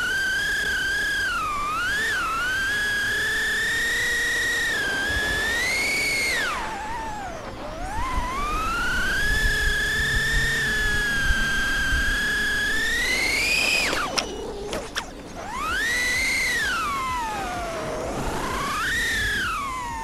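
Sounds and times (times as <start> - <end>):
racing drone motors whining: 0.0 - 20.0
clicks: 13.4 - 15.3.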